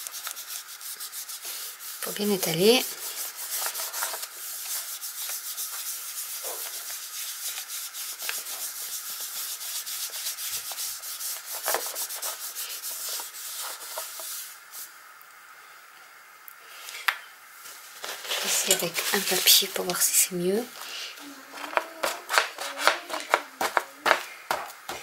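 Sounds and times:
wipe rubbing on paper: 0:00.0 - 0:14.9, 0:17.7 - 0:20.2.

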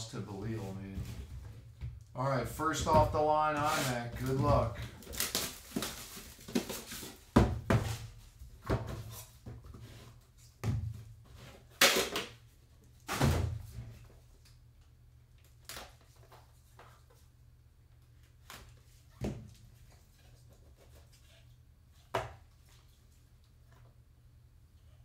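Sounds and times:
cardboard rustling: 0:02.8 - 0:08.1.

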